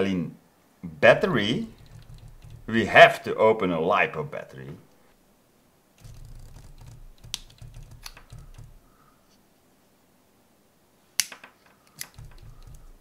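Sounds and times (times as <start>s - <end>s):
hands rubbing and bumping: 1.4s - 3.0s, 6.0s - 8.9s, 11.2s - 13.0s
sharp plastic clicks: 1.7s - 2.7s, 6.0s - 8.9s, 11.2s - 13.0s.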